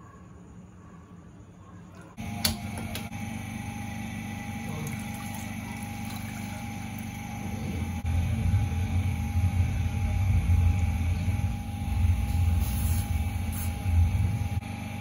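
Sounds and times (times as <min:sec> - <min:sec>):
low rumble: 0:08.0 - 0:14.6.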